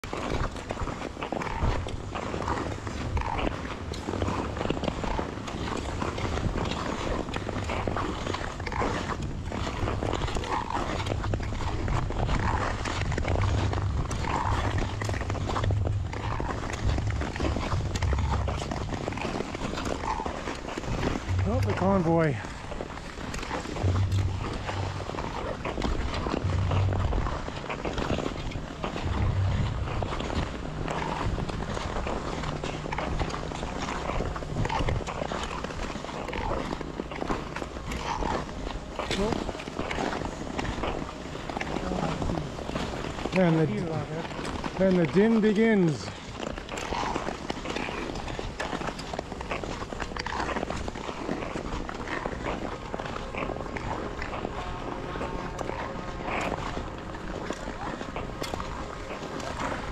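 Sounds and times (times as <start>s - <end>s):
wind rumble on microphone: 0.0s - 59.9s
ice skate blades scraping ice: 0.1s - 59.9s
low rumble: 9.4s - 36.1s.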